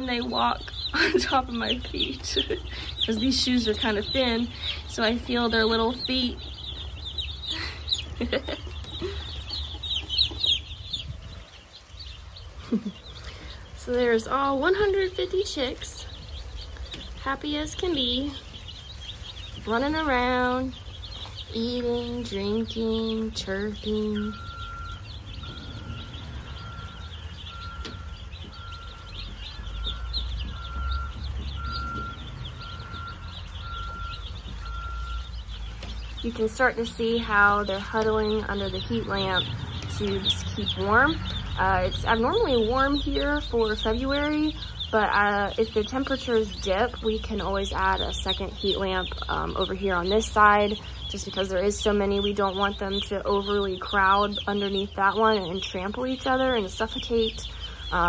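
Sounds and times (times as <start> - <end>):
chicks peeping: 0.0 - 58.0
steady beep: 23.9 - 27.0, 27.6 - 35.3.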